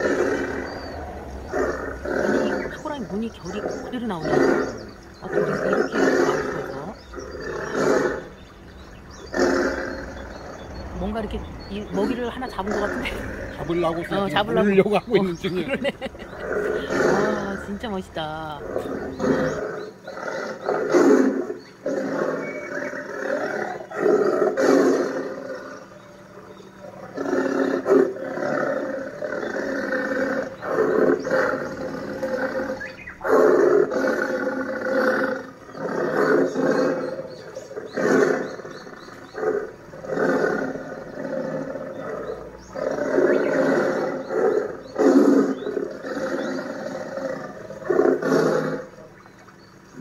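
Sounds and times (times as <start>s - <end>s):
tiger roaring and growling: 0.0s - 50.0s.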